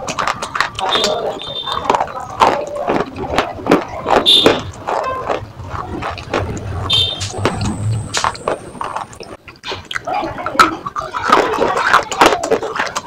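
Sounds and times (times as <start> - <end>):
slate crunching and cracking: 0.0 - 10.1.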